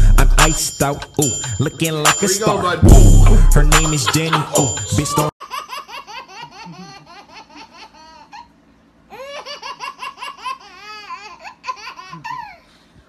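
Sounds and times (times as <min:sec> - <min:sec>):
baby laughing: 0:03.8 - 0:12.7.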